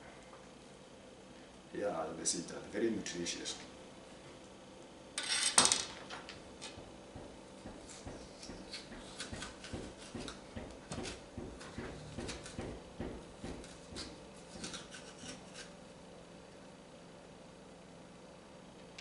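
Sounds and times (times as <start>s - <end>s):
knife cutting squash on board: 7.7s - 15.8s.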